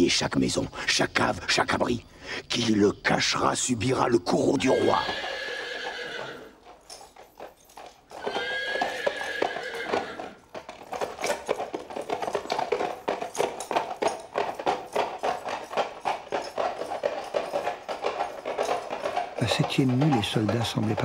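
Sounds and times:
hooves clattering on cobblestones: 4.0 - 21.0
horse whinnying: 4.4 - 6.8, 7.8 - 12.8.

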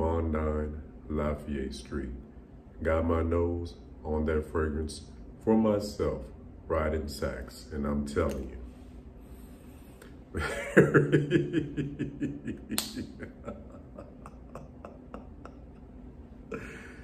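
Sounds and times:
man chuckling: 10.3 - 17.0.

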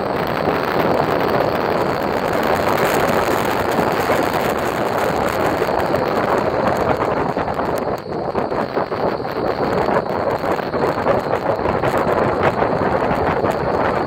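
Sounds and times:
wheels rumbling on pavement: 0.0 - 14.0
wind noise on microphone: 0.0 - 14.0.

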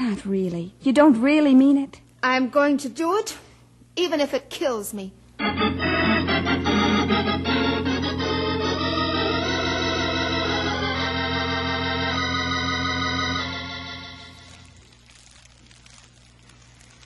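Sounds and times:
organ music: 5.4 - 14.8.

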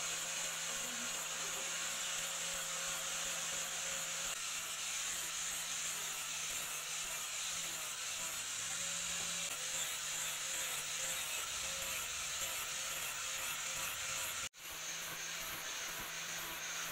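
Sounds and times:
angle grinder grinding steel: 0.0 - 16.9.

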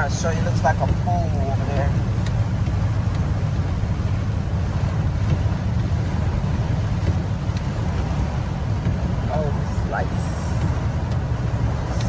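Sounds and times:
low road rumble: 0.0 - 12.0
rain and tyre spray hiss: 0.0 - 12.0.

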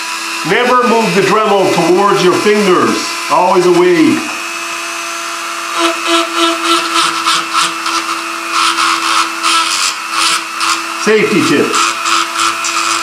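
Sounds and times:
rotary tool whining: 2.1 - 13.0
rotary bit rasping on metal: 5.7 - 13.0.

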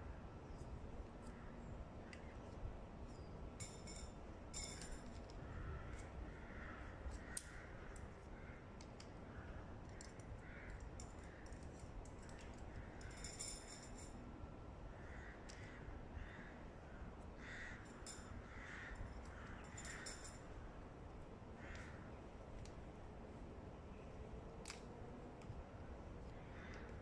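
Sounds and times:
crows cawing faintly: 1.2 - 2.5, 4.8 - 14.0, 14.8 - 20.8, 21.5 - 22.3, 26.2 - 27.0
gear clicking and clinking: 3.0 - 6.2, 9.8 - 14.2, 17.8 - 20.6.

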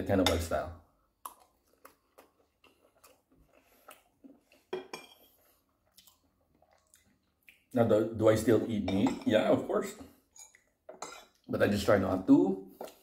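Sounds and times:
cutlery clinking on ceramic plates: 4.7 - 5.4, 8.9 - 9.4, 10.4 - 11.4.

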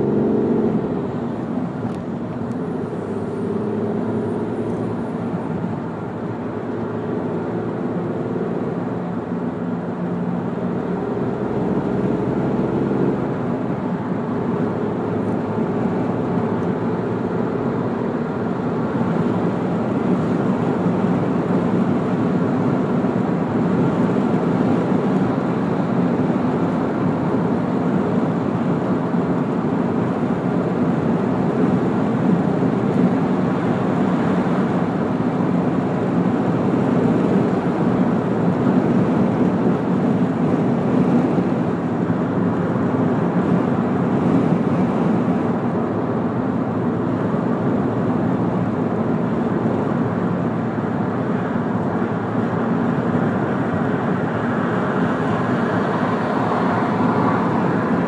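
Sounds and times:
car engine and tyre noise: 0.0 - 58.0.

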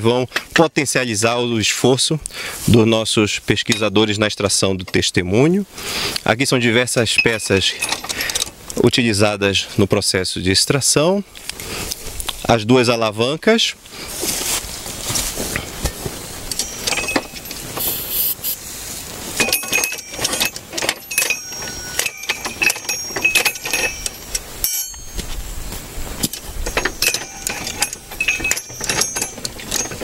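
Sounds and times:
metal parts clinking and clanking: 6.9 - 8.7, 16.2 - 18.0, 19.3 - 25.4, 26.2 - 30.0.

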